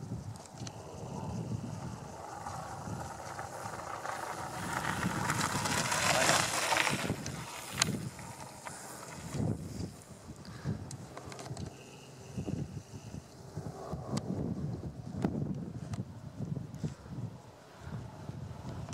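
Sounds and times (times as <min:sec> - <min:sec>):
bike tyres on gravel: 0:00.0 - 0:13.1.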